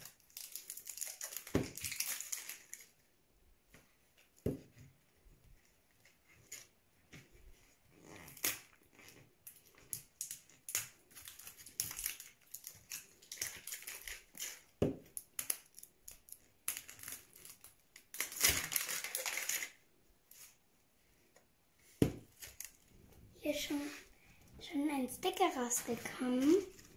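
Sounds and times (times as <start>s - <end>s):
plastic wrapping crackling: 0.0s - 3.1s, 7.9s - 20.6s.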